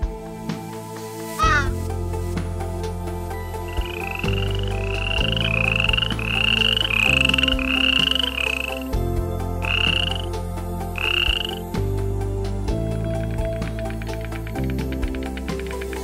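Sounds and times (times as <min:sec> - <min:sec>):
low background music: 0:00.0 - 0:16.0
animal buzzy calls: 0:01.4 - 0:01.8.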